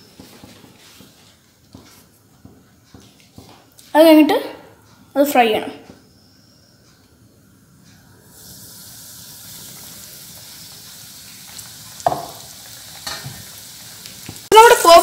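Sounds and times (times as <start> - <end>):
chicken sizzling in deep oil: 8.2 - 15.0.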